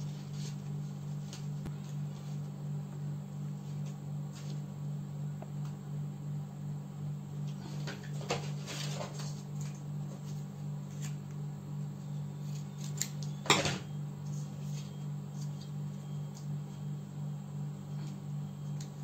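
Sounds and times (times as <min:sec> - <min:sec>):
paper rustling: 0:00.0 - 0:02.5, 0:07.6 - 0:11.3
steady low hum: 0:00.0 - 0:19.0.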